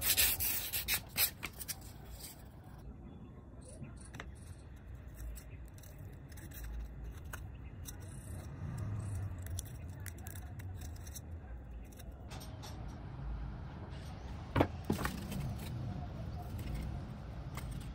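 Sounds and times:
low steady background rumble: 1.8s - 17.9s.

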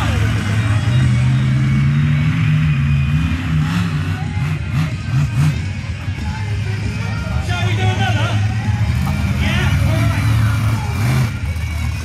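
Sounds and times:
truck engine running and revving: 0.0s - 12.0s.

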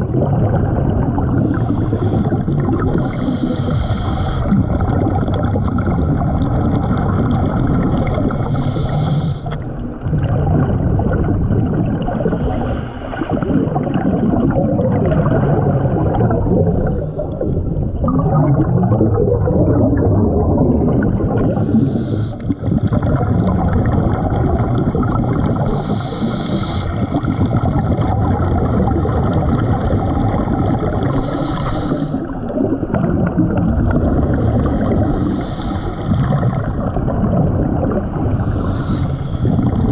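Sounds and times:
exhaled bubbles gurgling underwater: 0.0s - 39.9s
regulator inhalation hiss: 3.0s - 4.5s, 8.4s - 9.5s, 21.5s - 22.5s, 25.7s - 27.0s, 31.1s - 32.3s, 38.2s - 39.5s.

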